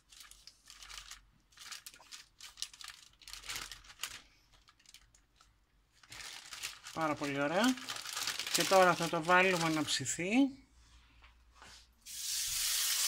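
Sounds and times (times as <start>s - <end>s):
baking paper crinkling: 0.0s - 10.4s.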